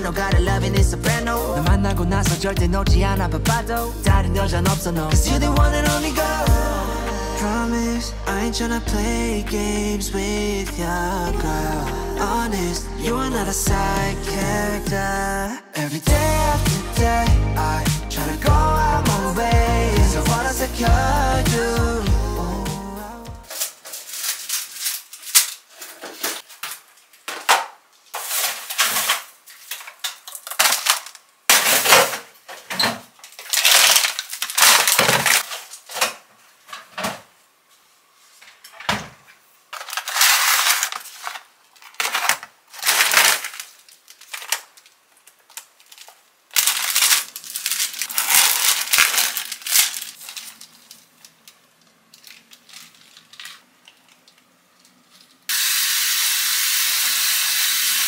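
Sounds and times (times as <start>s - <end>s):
plastic packaging rustling: 23.5s - 37.0s, 39.7s - 55.5s
items knocking and clattering: 38.7s - 43.6s.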